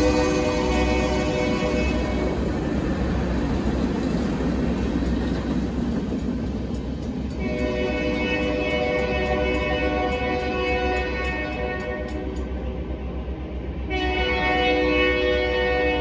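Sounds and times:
freight train rumble: 0.0s - 16.0s
regular ticking: 2.3s - 12.5s.

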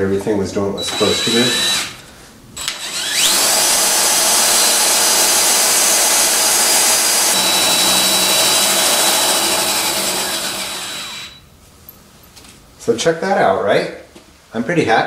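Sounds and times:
cordless drill running: 0.8s - 2.0s, 2.6s - 11.4s
steady high whine: 0.8s - 12.3s.

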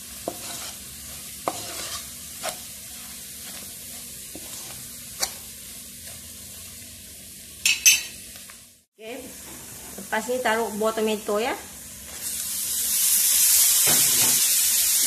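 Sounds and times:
spatula stirring and scraping: 0.0s - 6.8s
onions and spices sizzling in a wok: 0.0s - 15.0s.

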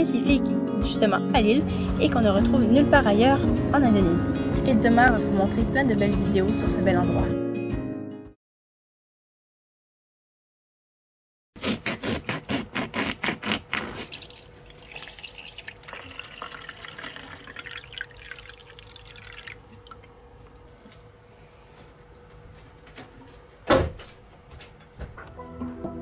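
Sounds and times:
water glugging into plastic jug: 14.1s - 20.2s
faint steady hum: 14.2s - 24.8s.

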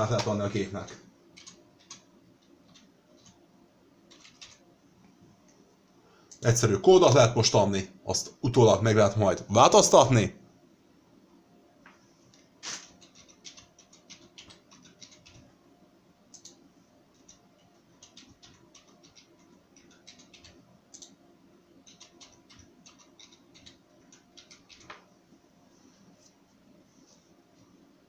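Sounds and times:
keyboard typing clicks: 1.4s - 3.4s, 4.1s - 4.6s, 13.0s - 15.4s, 16.3s - 17.4s, 18.0s - 21.2s, 21.8s - 25.1s.

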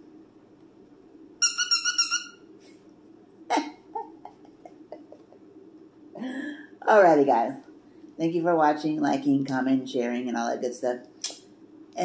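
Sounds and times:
dog toy squeaking: 1.4s - 2.4s.

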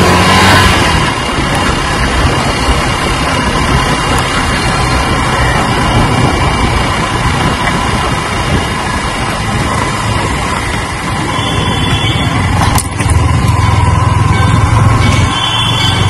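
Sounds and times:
motorcycle engine running: 0.0s - 16.0s
wind and tyre noise: 0.0s - 16.0s.

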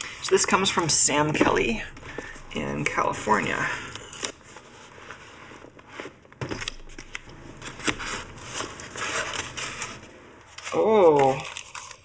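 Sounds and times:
cardboard box and styrofoam rustling: 3.4s - 12.0s.

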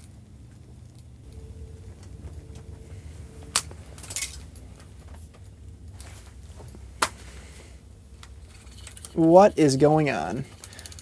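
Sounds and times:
low steady hum: 0.0s - 11.0s
fishing reel clicks and clinks: 10.5s - 11.0s.

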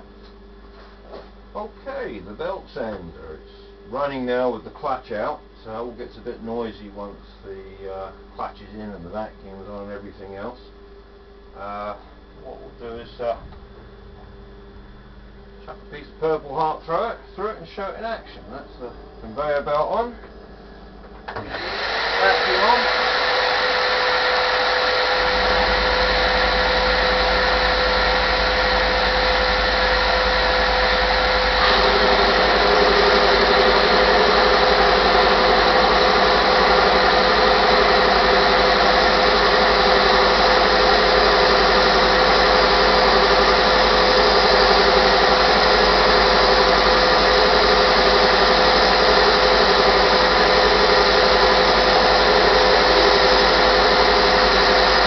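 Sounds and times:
sander machine whine: 21.3s - 55.0s.

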